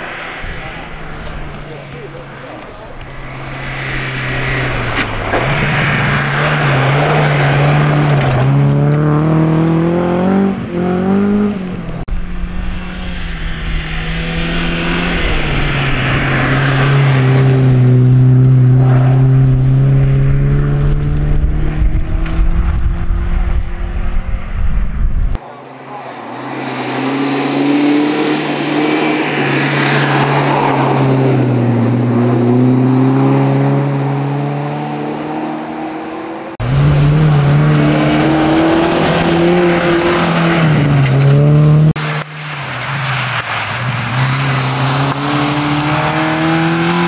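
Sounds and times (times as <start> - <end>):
tyres hissing through snow: 3.1 - 7.6
rally car engine revving hard: 5.3 - 11.8, 26.9 - 42.3, 44.0 - 47.0.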